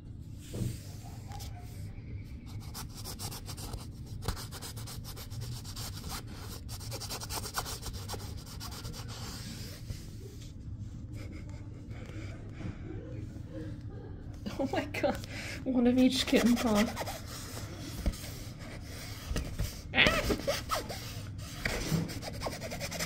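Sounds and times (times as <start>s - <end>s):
scratching on nylon fabric: 16.2s - 17.5s.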